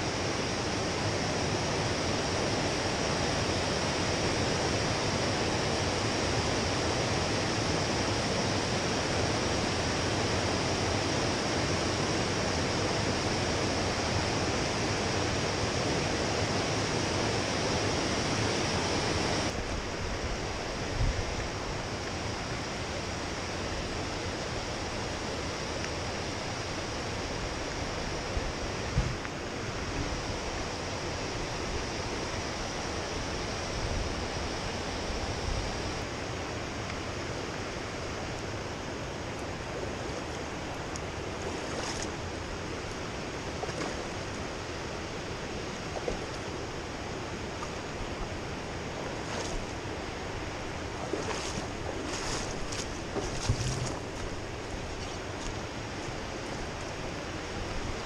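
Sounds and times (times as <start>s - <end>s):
stream water flowing: 0.1s - 58.0s
faint low bumps: 51.1s - 56.2s.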